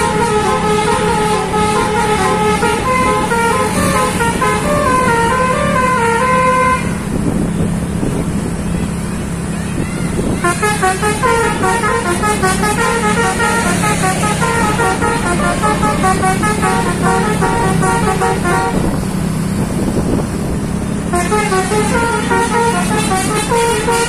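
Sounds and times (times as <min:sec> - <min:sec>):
musical bus horn melody: 0:00.0 - 0:07.1, 0:10.4 - 0:19.0, 0:21.0 - 0:24.0
bus engine hum: 0:00.0 - 0:24.0.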